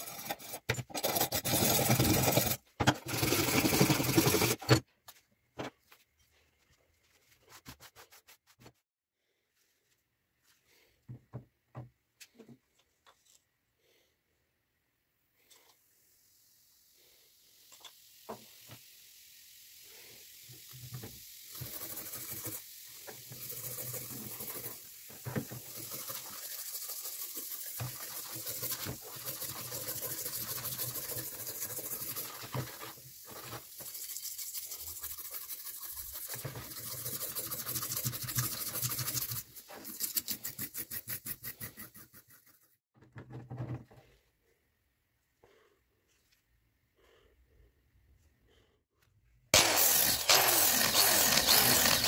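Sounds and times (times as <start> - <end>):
wire brush scrubbing metal in liquid: 21.5 - 42.6, 49.6 - 52.0.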